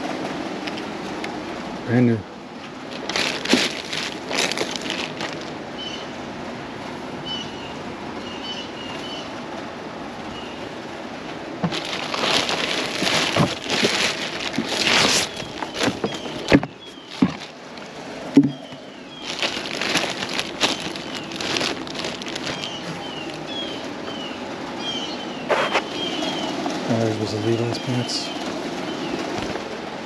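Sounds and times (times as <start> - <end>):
clothes rustling in plastic: 2.6 - 5.7, 11.6 - 23.9.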